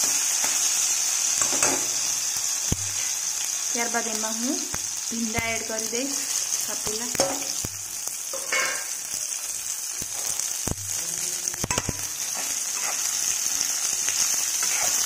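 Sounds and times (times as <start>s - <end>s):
okra sizzling in oil: 0.0s - 15.0s.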